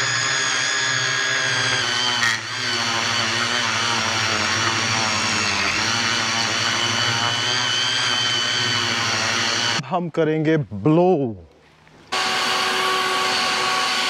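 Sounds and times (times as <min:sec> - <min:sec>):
blade grinding grass edge: 0:00.0 - 0:09.8
lawn edger motor whine: 0:00.0 - 0:09.8, 0:12.1 - 0:14.0.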